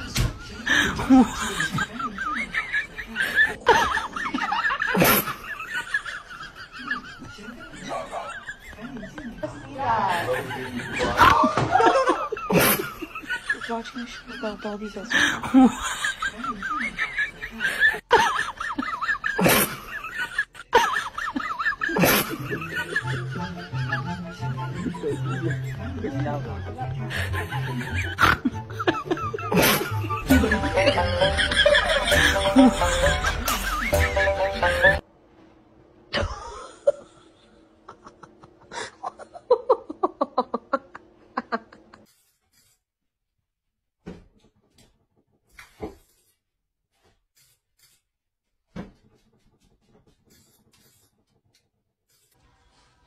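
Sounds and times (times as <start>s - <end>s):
rhythmic laughter: 0.0s - 35.0s, 36.1s - 42.7s
background music: 21.9s - 35.0s.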